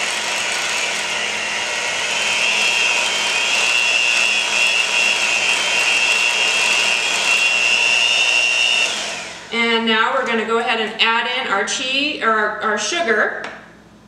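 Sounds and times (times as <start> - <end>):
electric hand mixer whining: 0.0 - 9.9.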